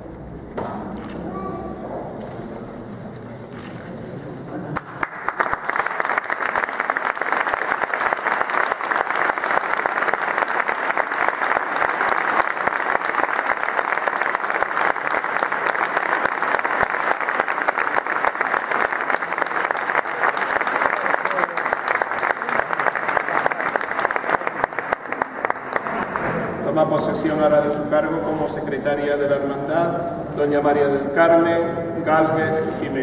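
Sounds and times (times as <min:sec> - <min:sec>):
audience applauding: 0:04.8 - 0:26.4.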